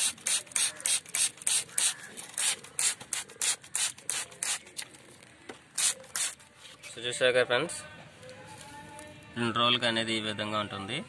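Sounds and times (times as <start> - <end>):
spray bottle squirts: 0.0 - 4.9, 5.7 - 6.5.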